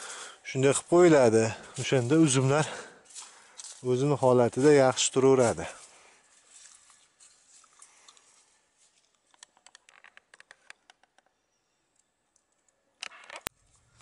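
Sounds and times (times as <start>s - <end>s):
faint clicks and crackles: 6.5s - 14.0s.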